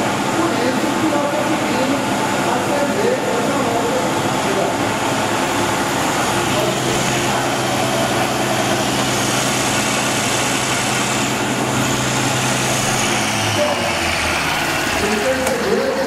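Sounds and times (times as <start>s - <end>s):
electric motor humming: 4.4s - 16.0s.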